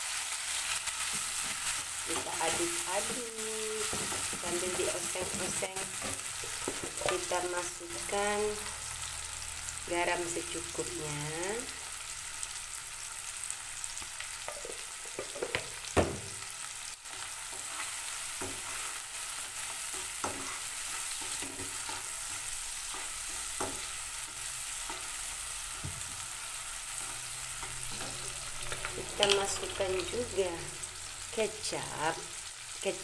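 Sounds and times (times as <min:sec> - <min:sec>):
vegetables sizzling in hot oil: 0:00.0 - 0:33.0
spatula knocking and scraping pan: 0:03.8 - 0:07.3, 0:14.4 - 0:16.4, 0:17.5 - 0:18.9, 0:19.5 - 0:25.1.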